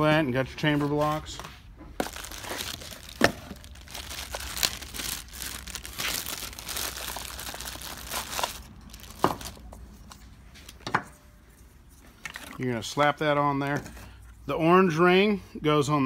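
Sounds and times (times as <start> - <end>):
plastic bag crinkling: 2.0 - 9.7.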